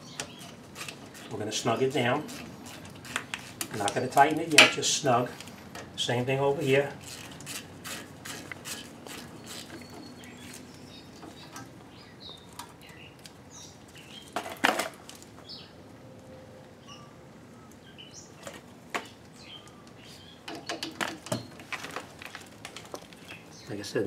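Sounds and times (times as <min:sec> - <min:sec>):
small birds chirping: 0:00.0 - 0:04.5, 0:08.7 - 0:14.4, 0:15.4 - 0:15.8, 0:16.8 - 0:21.6, 0:23.0 - 0:24.0.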